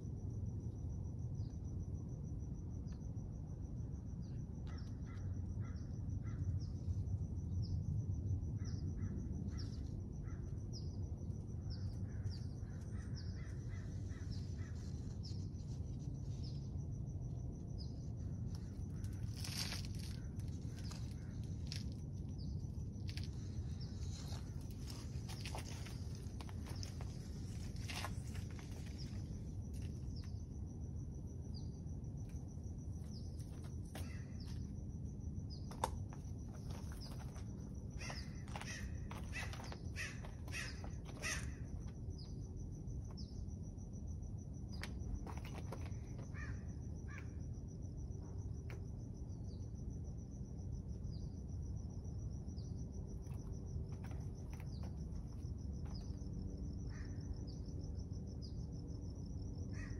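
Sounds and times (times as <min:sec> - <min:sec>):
birds calling: 0:38.0 - 0:41.6.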